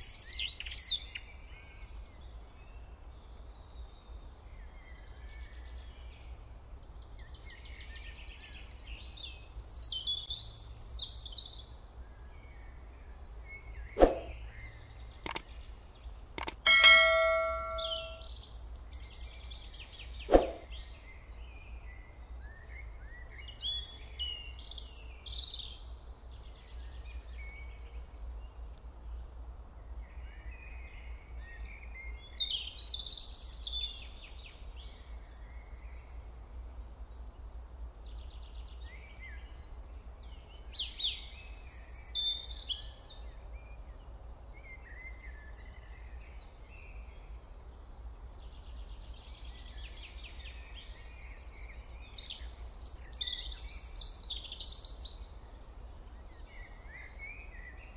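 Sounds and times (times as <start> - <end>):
birds chirping: 12.6 - 21.8.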